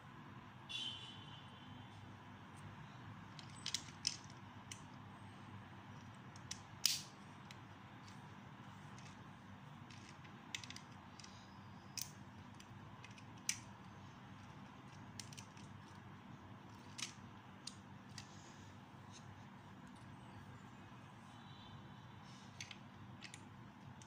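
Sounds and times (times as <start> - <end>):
faint steady hum: 0.0 - 24.0
plastic bricks clicking: 3.3 - 4.9, 6.0 - 7.6, 9.8 - 11.4, 12.0 - 13.7, 14.4 - 16.0, 16.7 - 18.3.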